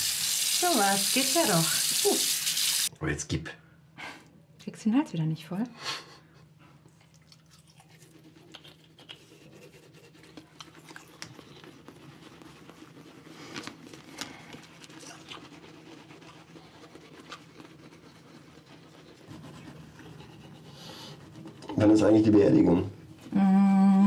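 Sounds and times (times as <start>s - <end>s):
toothbrushes scrubbing teeth: 0.0s - 2.9s, 7.2s - 22.8s.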